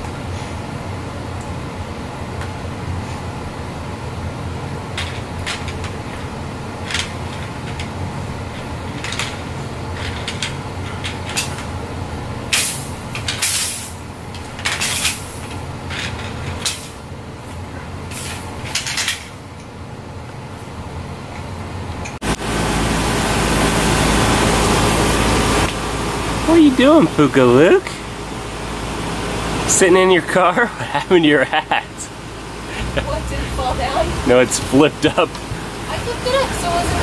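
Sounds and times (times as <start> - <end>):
plastic toys clacking and rattling: 6.8 - 8.0, 8.6 - 11.7, 18.6 - 19.3.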